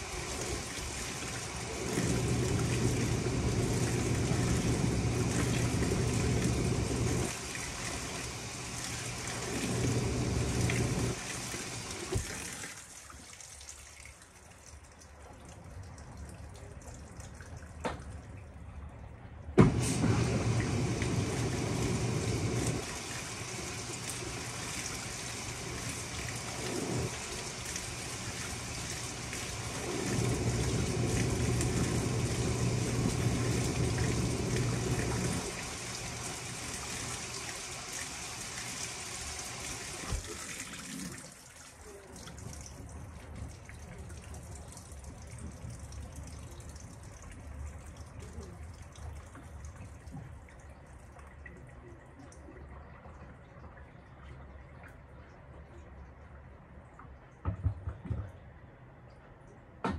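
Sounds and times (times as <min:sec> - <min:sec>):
washing machine motor humming: 0:00.0 - 0:12.3, 0:19.6 - 0:40.4
water pouring into tub: 0:00.0 - 0:14.2, 0:19.6 - 0:47.2
washing machine clunk: 0:19.6 - 0:22.8.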